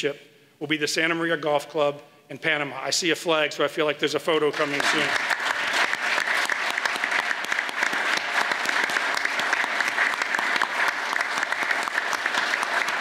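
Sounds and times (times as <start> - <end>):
audience applauding: 4.5 - 13.0.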